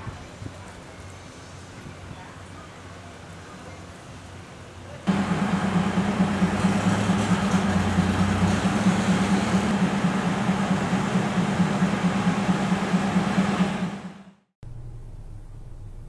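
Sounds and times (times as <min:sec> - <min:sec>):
diesel train engine humming: 0:02.4 - 0:16.0.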